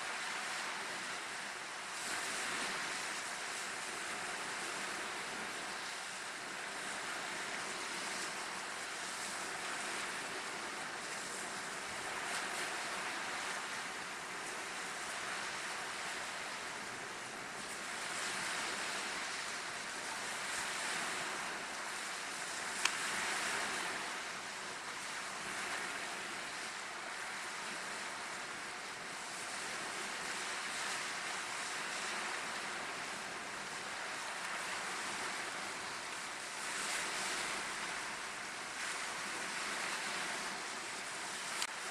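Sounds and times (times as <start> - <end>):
wind: 0.0 - 41.9
waves splashing against rocks: 2.1 - 26.4.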